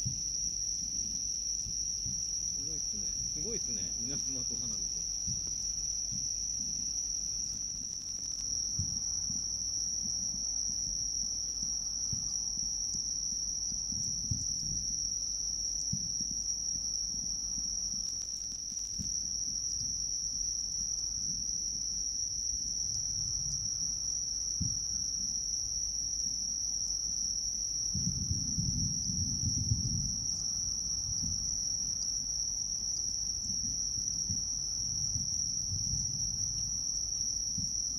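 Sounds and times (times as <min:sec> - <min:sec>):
faint low thuds: 0:00.0 - 0:07.9, 0:08.6 - 0:11.0, 0:33.4 - 0:36.9, 0:37.5 - 0:37.9
night insects chorus: 0:00.0 - 0:37.9.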